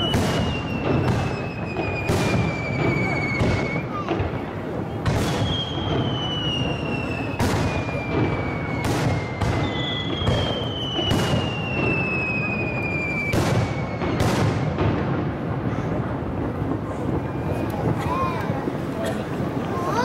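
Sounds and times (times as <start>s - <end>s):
firework shells booming: 0.0s - 19.7s.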